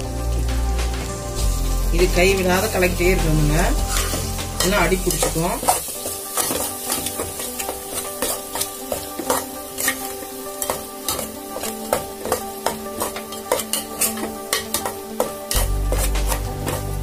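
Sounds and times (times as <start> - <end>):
metal spatula scraping pot: 3.5 - 17.0.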